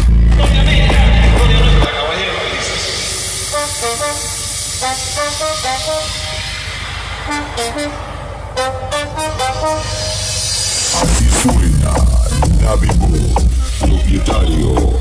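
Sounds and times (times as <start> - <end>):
music through car speakers: 0.0 - 15.0
sharp hits: 2.6 - 14.0.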